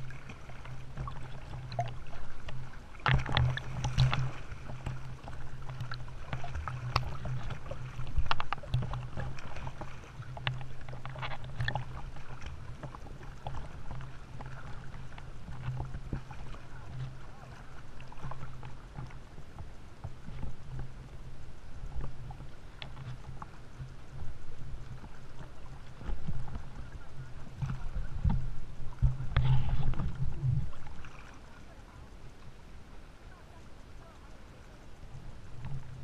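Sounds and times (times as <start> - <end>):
water splashing from kicking: 0.0 - 32.6
steady low hum: 0.0 - 36.0.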